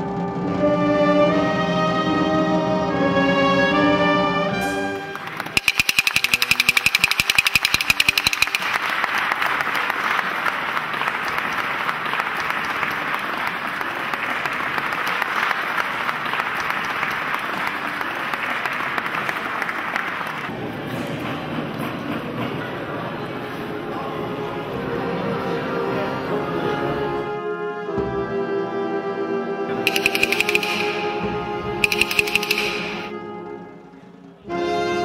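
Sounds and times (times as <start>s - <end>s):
crowd applauding: 5.0s - 20.5s
fast rattle of sharp knocks: 5.6s - 8.8s, 31.8s - 33.1s.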